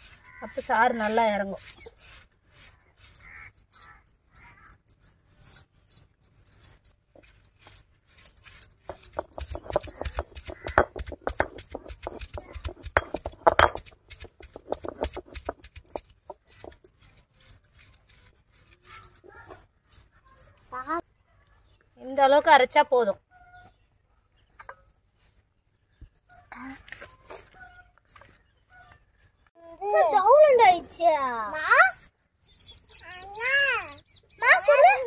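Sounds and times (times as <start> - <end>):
bangles clinking: 0.0 - 21.0, 31.3 - 35.0
stone grinding on stone: 6.6 - 19.3.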